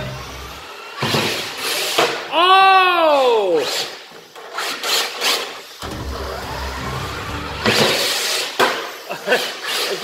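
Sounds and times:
toy car motor hum: 0.0s - 2.2s, 3.6s - 10.0s
person crying oh: 2.3s - 3.6s.

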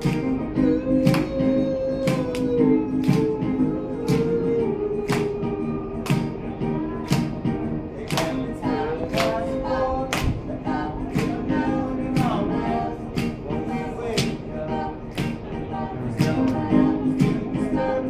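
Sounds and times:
voices singing: 0.0s - 18.0s
sharp steady beat: 10.2s - 18.0s.

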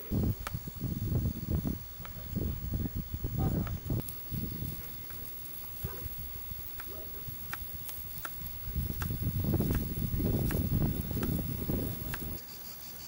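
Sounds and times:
faint hiss: 0.0s - 13.0s
wood fire crackling and popping: 3.6s - 12.4s.

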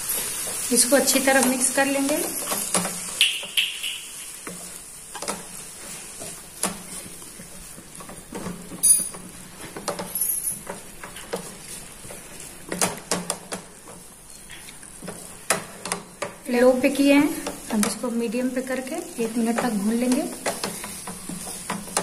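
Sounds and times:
faint sizzle: 0.0s - 22.0s
spatula scraping a pan: 4.3s - 16.3s, 19.2s - 22.0s.

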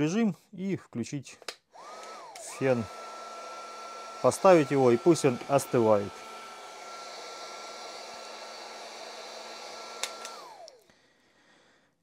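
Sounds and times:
heat gun fan motor whine: 1.8s - 10.8s.

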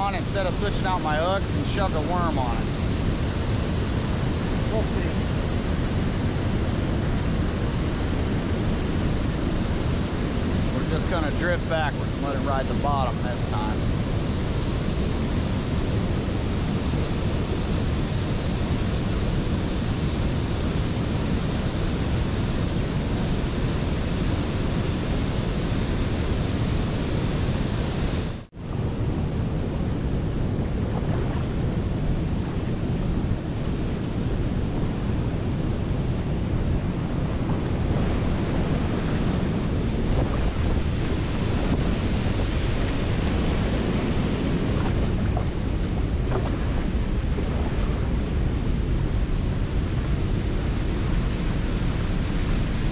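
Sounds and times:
waterfall roaring: 0.0s - 19.9s
churning white water: 0.0s - 52.9s.

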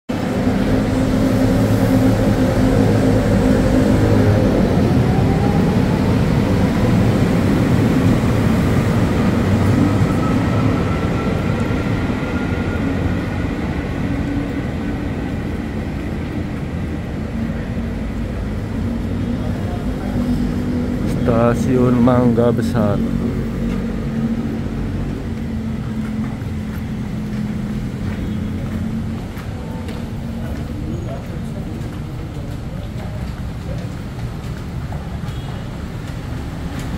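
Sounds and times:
train low hum: 0.1s - 36.9s
wheels on rails: 23.0s - 36.9s.

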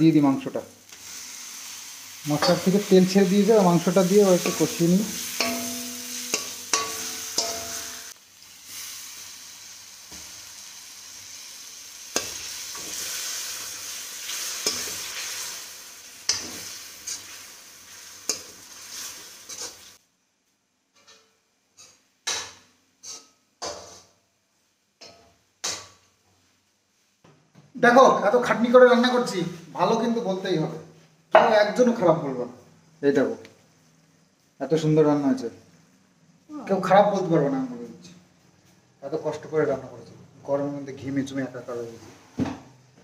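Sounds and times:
chicken sizzling in oil: 0.8s - 20.0s
metal spoon clinking against pan: 4.4s - 8.2s.

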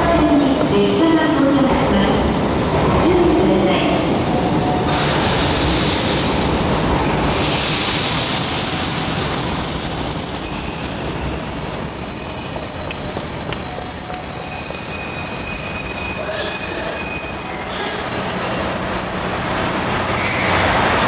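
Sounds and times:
train rumble: 0.0s - 21.0s
train wheels squealing: 6.3s - 21.0s.

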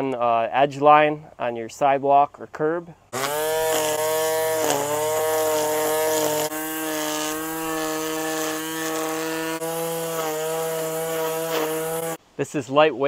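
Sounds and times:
string trimmer whining: 3.1s - 12.2s.

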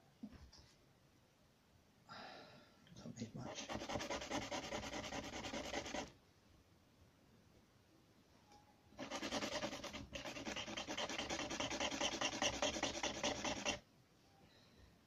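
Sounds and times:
quick rubbing strokes abrading: 3.5s - 6.1s, 9.0s - 13.8s.

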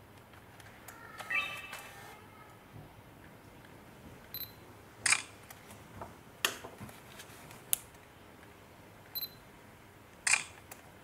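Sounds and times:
button click: 1.2s - 1.9s
camera focus beep: 1.2s - 2.1s
camera shutter clicking: 10.3s - 10.5s.

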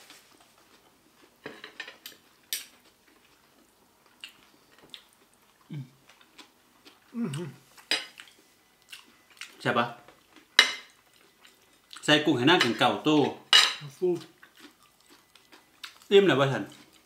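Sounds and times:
low voice hum: 5.7s - 6.0s, 7.1s - 7.6s.

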